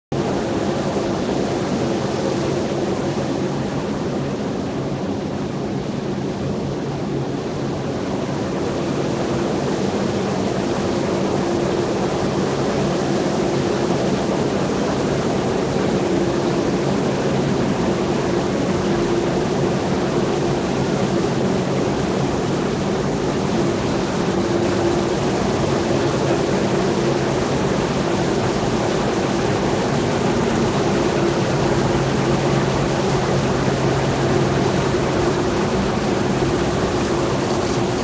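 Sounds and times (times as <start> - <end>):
low machine hum: 0.2 - 38.0
wire-stranding machinery running: 9.0 - 38.0.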